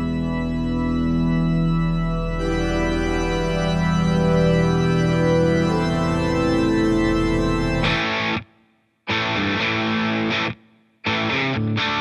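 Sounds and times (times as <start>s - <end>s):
organ chords: 0.0s - 8.5s.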